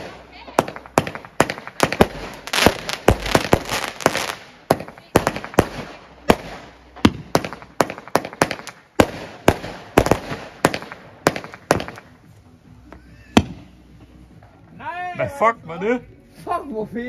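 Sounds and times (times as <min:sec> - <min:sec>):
fireworks bangs: 0:00.0 - 0:12.2
fireworks crackling: 0:00.0 - 0:12.6.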